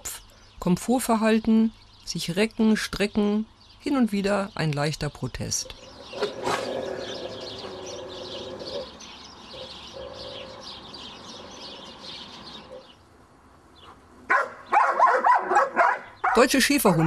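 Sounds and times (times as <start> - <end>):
small birds chirping: 0.0 - 17.0
dog barking: 14.3 - 17.0.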